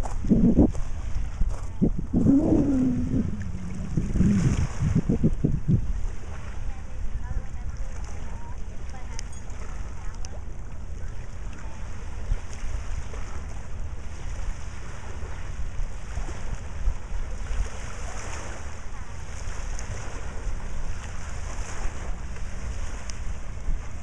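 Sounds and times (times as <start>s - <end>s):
water lapping against rocks: 0.0s - 6.7s
wind buffeting microphone: 0.0s - 8.4s.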